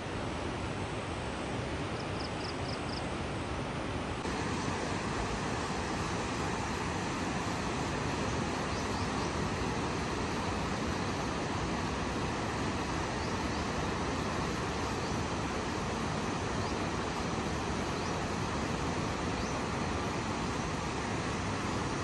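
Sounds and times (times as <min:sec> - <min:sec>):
river rushing: 0:00.0 - 0:22.0.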